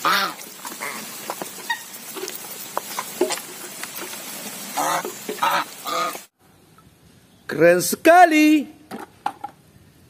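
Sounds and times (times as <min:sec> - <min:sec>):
geese bills dabbling and clattering: 0:00.0 - 0:06.3
geese soft calls: 0:04.7 - 0:06.3.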